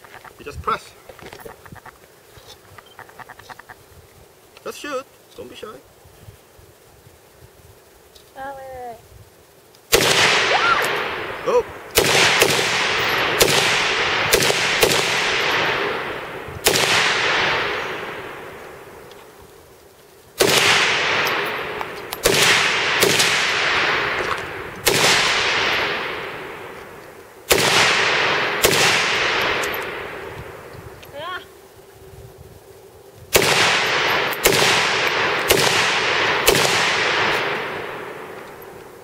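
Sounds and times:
rifle shots with echo: 0:09.9 - 0:19.1, 0:20.4 - 0:30.7, 0:33.3 - 0:39.0.

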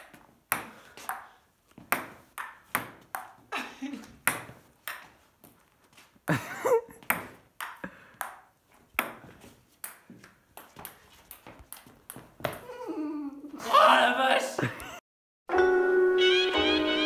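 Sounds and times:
table tennis ball hits: 0:00.0 - 0:03.5, 0:04.1 - 0:05.2, 0:07.0 - 0:12.6.

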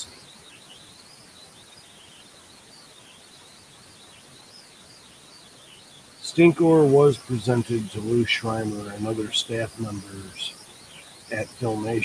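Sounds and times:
faint high-pitched whine: 0:00.0 - 0:12.0
steady low hiss: 0:00.0 - 0:12.0.

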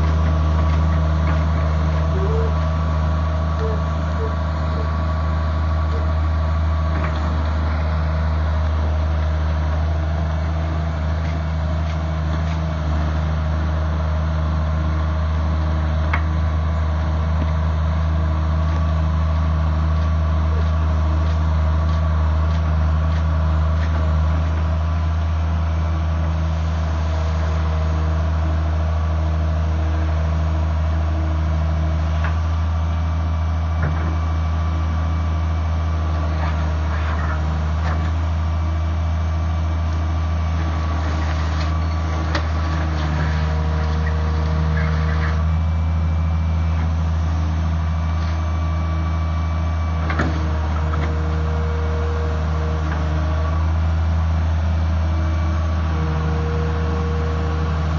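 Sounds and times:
excavator diesel engine running: 0:00.0 - 0:57.9.

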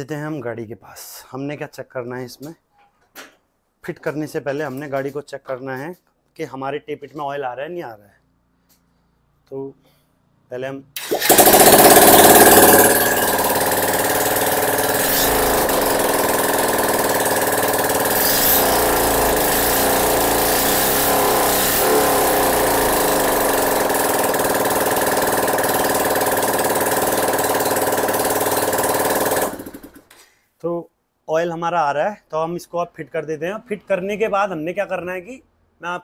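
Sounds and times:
motorcycle engine revving and idling: 0:11.2 - 0:30.0.

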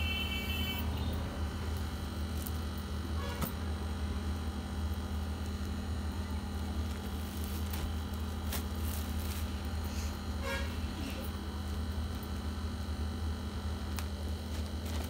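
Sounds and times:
low background hum: 0:00.0 - 0:15.0
cloth and plastic wrappers rustling: 0:06.8 - 0:10.0.

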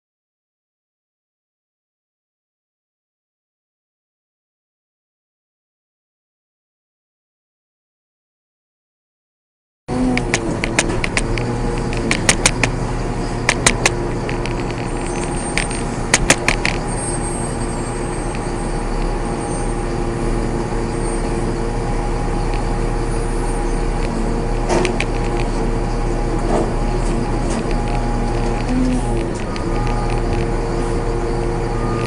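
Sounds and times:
trash compactor motor hum: 0:09.9 - 0:32.0
sharp clicks and knocks: 0:10.1 - 0:16.9, 0:24.0 - 0:25.7, 0:26.4 - 0:30.6.

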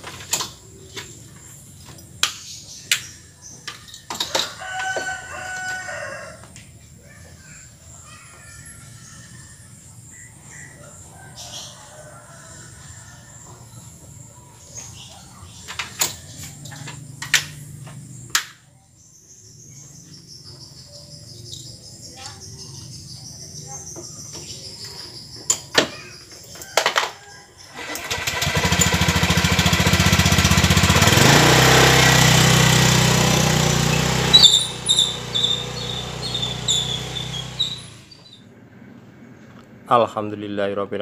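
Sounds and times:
rooster crowing: 0:04.2 - 0:06.6, 0:10.6 - 0:14.0, 0:26.6 - 0:28.5
insects trilling: 0:34.3 - 0:38.4.

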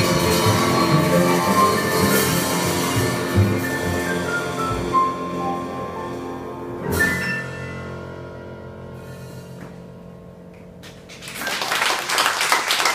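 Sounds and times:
applause: 0:10.8 - 0:12.9.

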